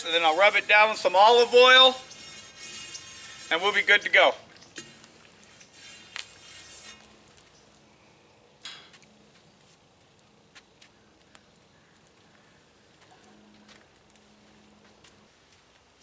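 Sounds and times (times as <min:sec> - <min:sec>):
metal spatula scraping wok: 0:00.0 - 0:04.2, 0:04.8 - 0:07.2.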